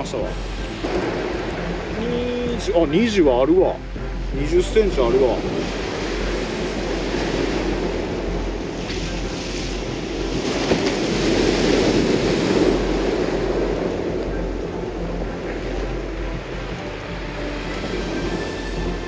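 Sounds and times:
waves breaking on pebbles: 5.0s - 14.5s.

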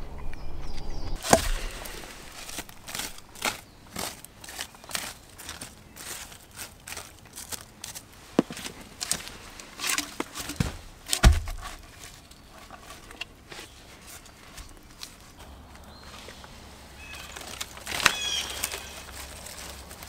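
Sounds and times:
log thudding into ash: 1.2s - 5.7s, 8.3s - 12.3s
stick scratching through ash: 1.2s - 15.4s.

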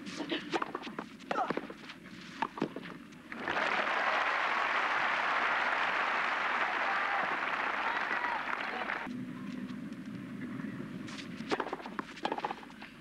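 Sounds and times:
crowd applause: 3.3s - 9.1s
racket hitting ball: 11.4s - 12.6s.

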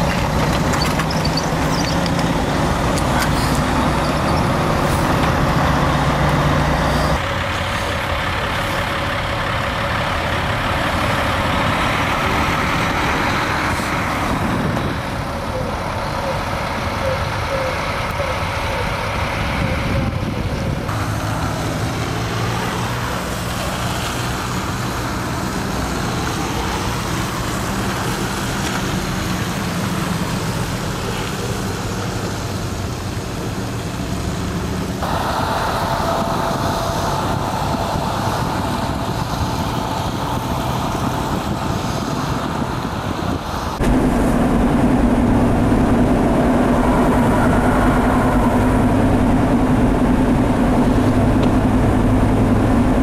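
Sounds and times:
road noise: 0.0s - 53.0s
vehicle engines idling: 0.0s - 53.0s.

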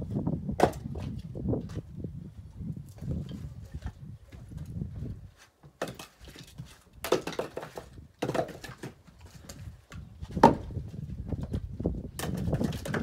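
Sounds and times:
firewood clattering onto woodpile: 5.7s - 10.8s, 12.1s - 13.0s.

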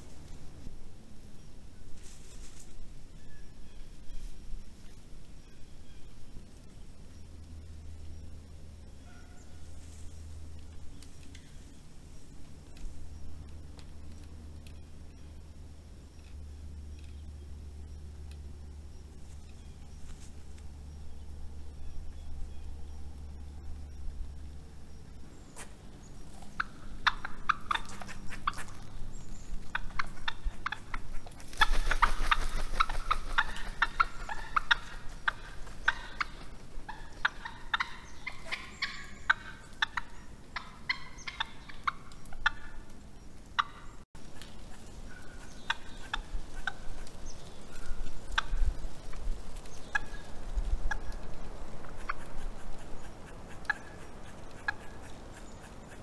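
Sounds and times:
wild turkeys calling: 25.5s - 56.0s.

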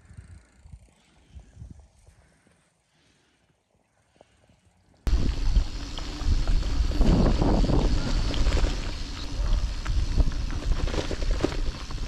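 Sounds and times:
bicycle rattles: 0.0s - 2.4s, 4.5s - 12.0s
tyre rumble on dirt track: 5.1s - 12.0s
wind buffeting microphone: 5.1s - 12.0s.

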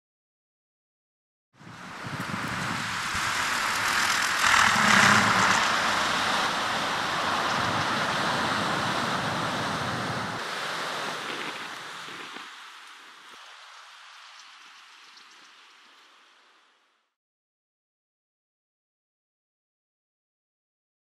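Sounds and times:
gusty wind rushing: 1.6s - 14.0s
low rumble: 2.6s - 7.9s.

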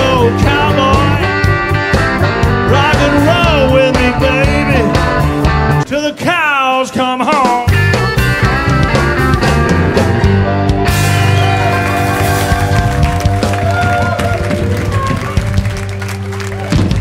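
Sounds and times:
rock song with singing: 0.0s - 12.7s.

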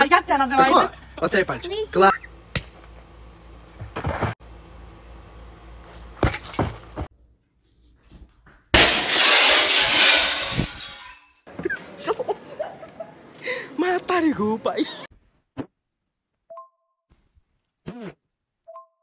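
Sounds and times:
glass shattering crash: 8.8s - 11.5s.

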